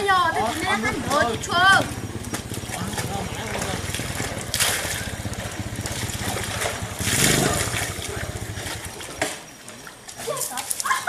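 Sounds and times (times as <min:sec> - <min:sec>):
small engine throbbing: 0:00.0 - 0:09.6
water splashing: 0:00.0 - 0:11.0.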